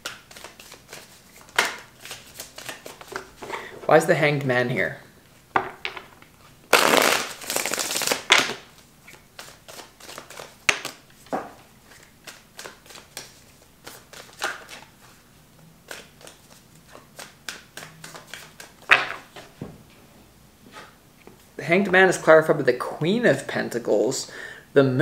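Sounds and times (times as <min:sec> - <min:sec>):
cards riffling: 0:06.7 - 0:11.0.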